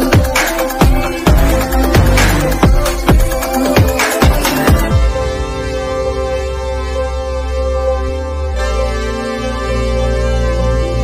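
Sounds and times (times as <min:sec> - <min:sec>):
deep steady bass: 0:00.0 - 0:11.0
sustained chords: 0:00.0 - 0:11.0.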